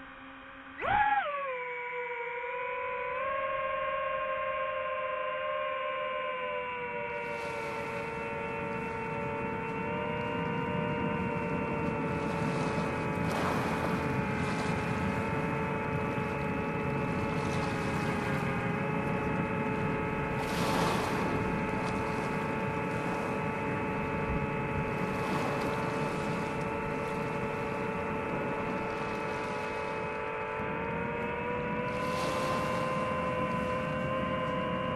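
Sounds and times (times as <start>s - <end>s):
drone motors whining: 0.0s - 34.9s.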